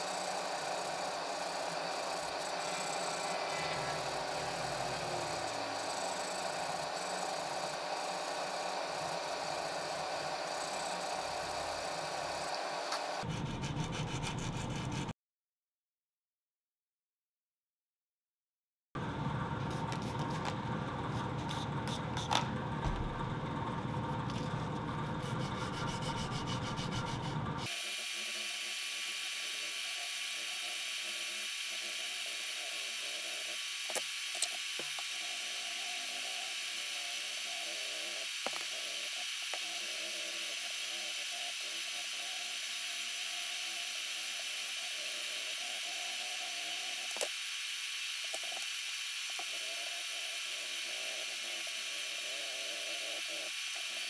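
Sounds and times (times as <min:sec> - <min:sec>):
power tool rough running: 0:00.0 - 0:13.2
power tool high whine: 0:00.0 - 0:13.3, 0:27.6 - 0:54.0.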